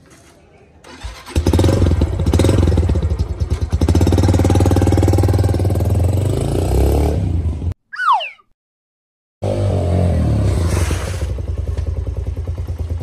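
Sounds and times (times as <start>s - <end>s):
motorcycle engine idling: 11.3s - 13.0s.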